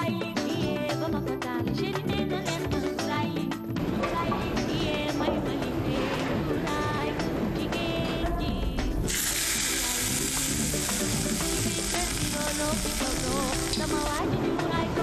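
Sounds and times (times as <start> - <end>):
background music: 0.0 - 15.0
incense sizzling on hot charcoal: 9.1 - 14.2.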